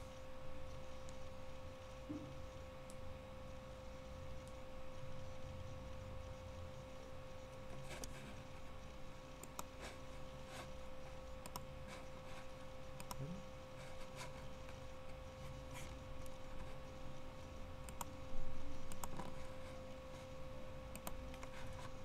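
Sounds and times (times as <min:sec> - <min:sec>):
electrical hum: 0:00.0 - 0:22.0
computer mouse clicks: 0:09.4 - 0:14.9, 0:17.8 - 0:18.2, 0:18.8 - 0:19.6, 0:20.9 - 0:22.0.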